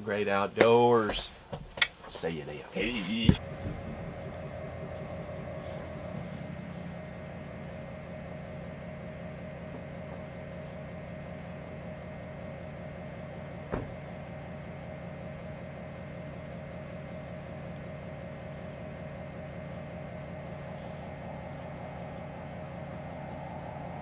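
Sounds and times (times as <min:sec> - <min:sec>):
machine hum with tones: 0:02.4 - 0:24.0.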